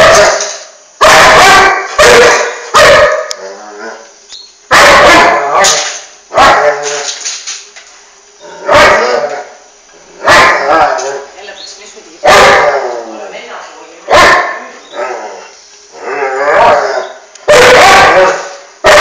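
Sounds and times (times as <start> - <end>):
dog barking loudly: 0.0 - 0.4, 1.0 - 3.3, 4.7 - 6.9, 8.6 - 9.3, 10.2 - 11.0, 12.2 - 12.8, 14.1 - 14.7, 16.5 - 19.0.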